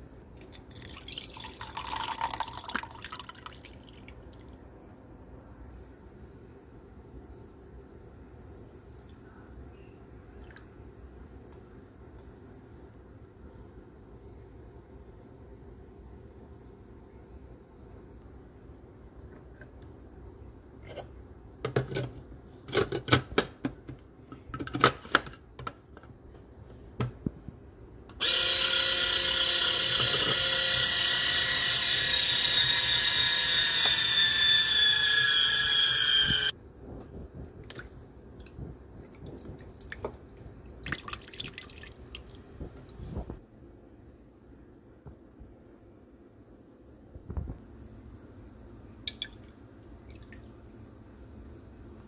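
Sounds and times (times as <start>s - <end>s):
juicer motor whining: 28.2s - 36.5s.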